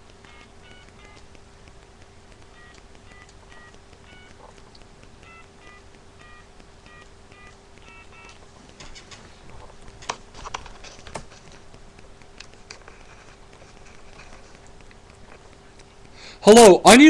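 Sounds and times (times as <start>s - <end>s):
faint steady hum: 0.0s - 17.0s
touch-tone dialing beeps: 0.2s - 1.3s, 2.5s - 4.6s, 5.2s - 8.4s.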